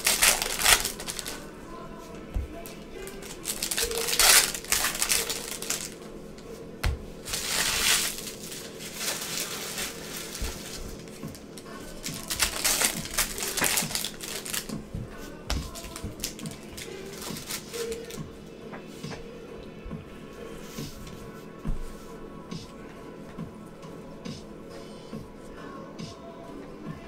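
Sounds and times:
cards clicking: 0:00.0 - 0:01.4, 0:07.3 - 0:14.8
foil wrappers crinkling: 0:00.0 - 0:01.4, 0:02.6 - 0:06.0, 0:07.2 - 0:18.2.

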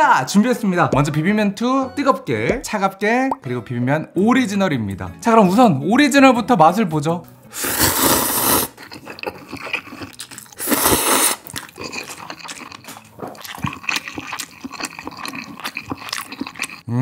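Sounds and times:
person slurping noodles: 0:07.5 - 0:17.0
wet chewing clicks: 0:08.5 - 0:16.9.

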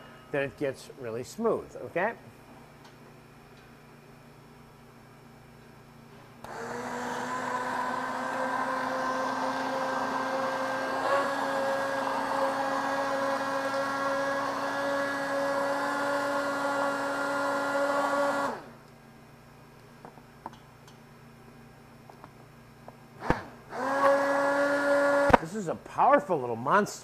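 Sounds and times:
immersion blender motor whine: 0:06.4 - 0:18.8, 0:23.2 - 0:25.5.

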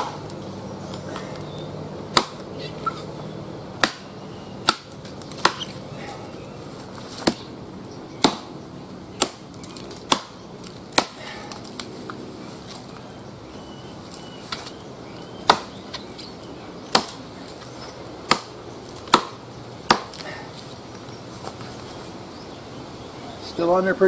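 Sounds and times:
machete chopping tree trunk: 0:00.0 - 0:00.4, 0:02.1 - 0:02.5, 0:03.8 - 0:06.2, 0:07.1 - 0:07.5, 0:08.2 - 0:08.6, 0:09.2 - 0:11.9, 0:15.4 - 0:16.0, 0:16.9 - 0:17.2, 0:18.2 - 0:20.4.

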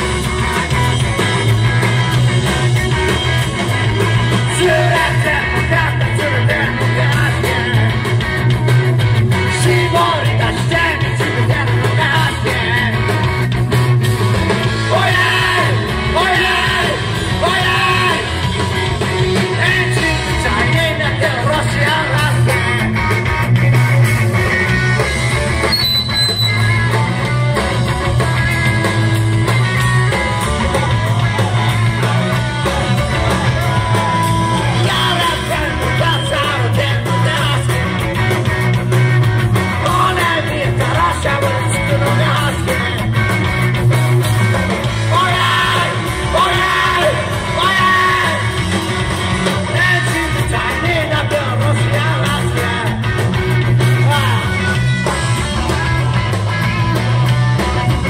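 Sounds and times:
drum kit: 0:00.0 - 0:58.0
electric guitars: 0:00.0 - 0:58.0
person singing: 0:04.4 - 0:08.1, 0:09.5 - 0:13.2, 0:30.2 - 0:38.3, 0:39.8 - 0:43.2, 0:45.0 - 0:48.6, 0:49.6 - 0:53.2.

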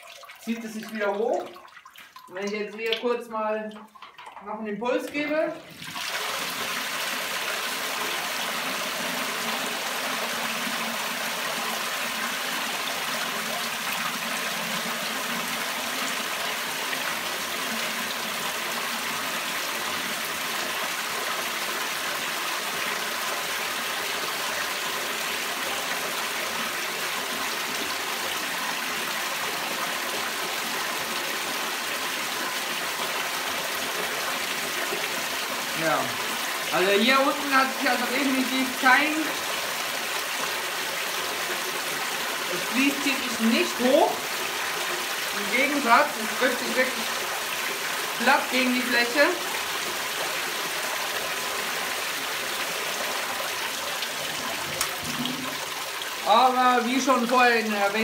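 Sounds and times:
water pouring from pipe: 0:00.0 - 0:58.0.

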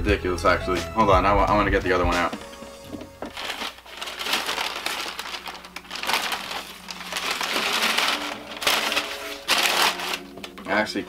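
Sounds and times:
tissue paper rustling: 0:02.4 - 0:10.8.

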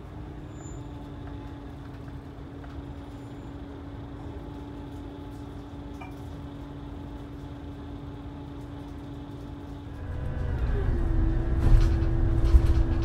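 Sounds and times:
coach engine and road rumble: 0:00.0 - 0:13.0.

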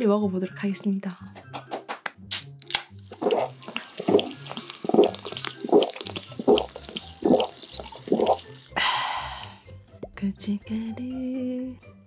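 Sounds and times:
person gulping soda: 0:02.9 - 0:09.6
breathy exhale: 0:08.7 - 0:09.7.

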